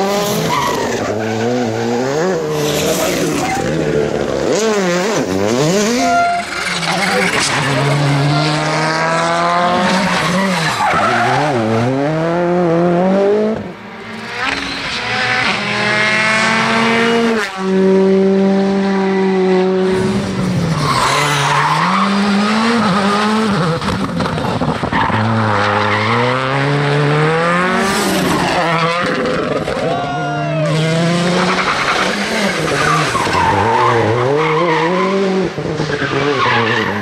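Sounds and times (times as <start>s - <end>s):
rally cars revving past: 0.0s - 29.9s, 30.6s - 37.0s.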